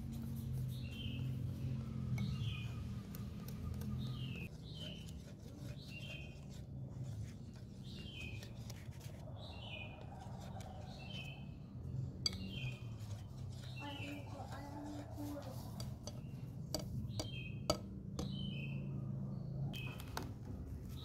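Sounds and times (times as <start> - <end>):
small bird chirping: 0.3 - 14.5, 15.5 - 20.1.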